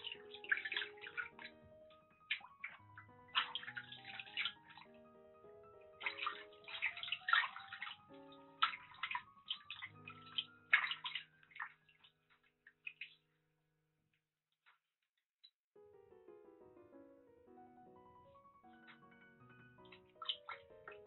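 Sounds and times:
water sloshing and splashing: 0:00.0 - 0:13.2, 0:19.8 - 0:21.0
gentle background music: 0:00.0 - 0:13.3, 0:15.8 - 0:21.0.

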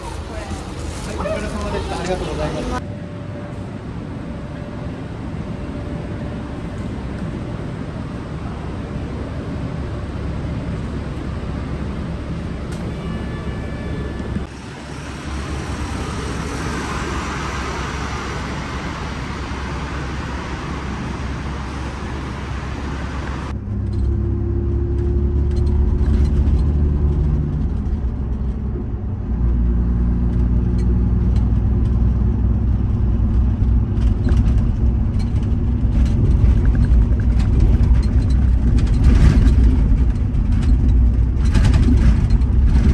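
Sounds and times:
bus engine drone: 0:00.0 - 0:42.9
traffic and engine noise: 0:00.0 - 0:42.9
short tone: 0:12.7 - 0:14.5.

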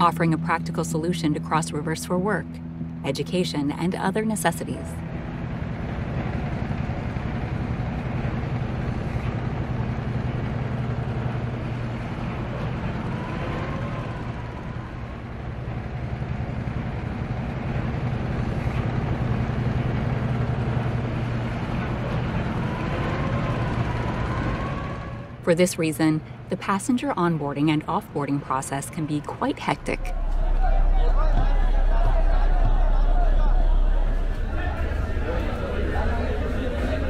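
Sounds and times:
faint wavering sounds: 0:00.0 - 0:37.0
ferry diesel engine drone: 0:00.0 - 0:37.0
river and harbour noise: 0:00.0 - 0:37.0.

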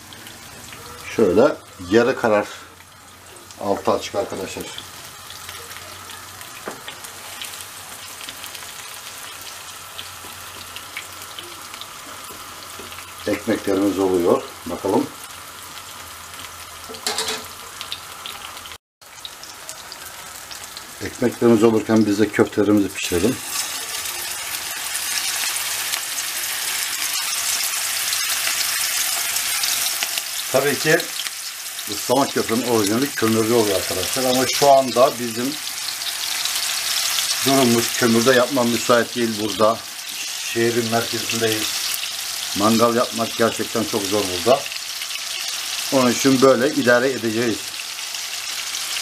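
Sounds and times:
bread sizzling in hot oil: 0:00.0 - 0:49.0.

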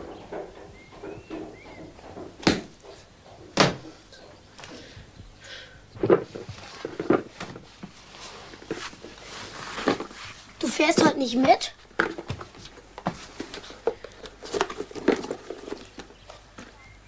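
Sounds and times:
thumps and bumps: 0:00.0 - 0:04.8, 0:06.0 - 0:16.8.

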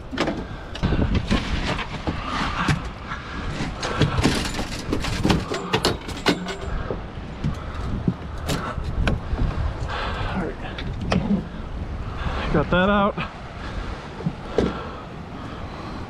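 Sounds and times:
knocks and thumps on boat deck: 0:00.0 - 0:09.6, 0:14.2 - 0:14.9
continuous low rumble: 0:00.0 - 0:16.0.

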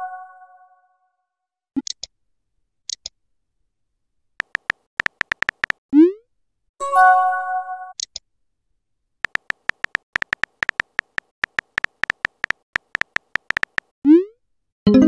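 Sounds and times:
phone keyboard tap clicks: 0:04.4 - 0:05.8, 0:09.3 - 0:13.9.

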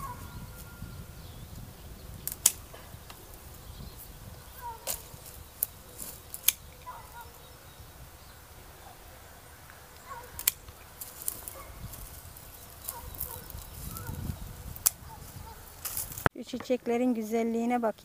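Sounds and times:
pruning shears snipping: 0:02.2 - 0:03.6, 0:04.5 - 0:07.4, 0:09.6 - 0:16.3.

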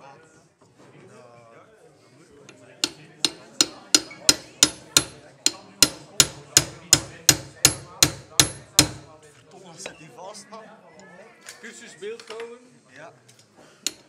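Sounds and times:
hammer blows on metal: 0:02.8 - 0:09.2.

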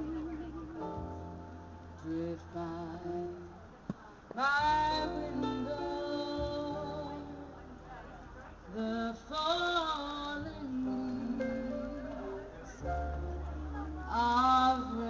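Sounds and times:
plucked double bass: 0:00.0 - 0:03.6, 0:04.5 - 0:15.0
keyboard chords: 0:00.0 - 0:03.7, 0:04.4 - 0:15.0.

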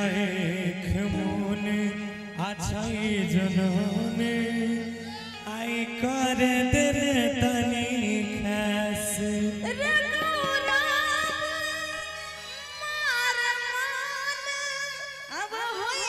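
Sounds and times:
woman singing: 0:09.2 - 0:16.0.

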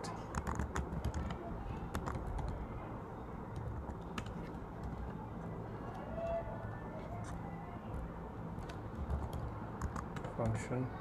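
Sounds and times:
computer keyboard taps: 0:00.3 - 0:02.6, 0:03.5 - 0:05.0, 0:08.6 - 0:10.6.

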